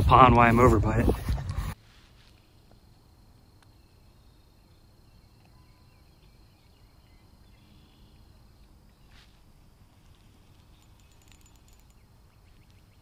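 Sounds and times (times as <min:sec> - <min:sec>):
distant bird chirps: 0:03.6 - 0:13.0.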